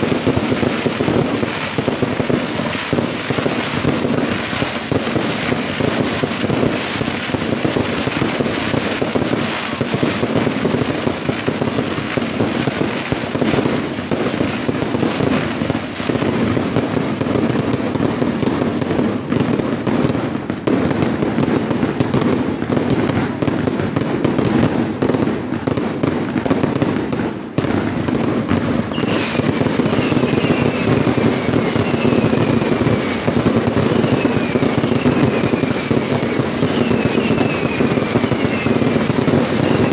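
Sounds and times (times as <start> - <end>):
falling firework whistles: 0.0 - 19.6, 27.6 - 39.9
fireworks bursting and crackling: 0.0 - 39.9.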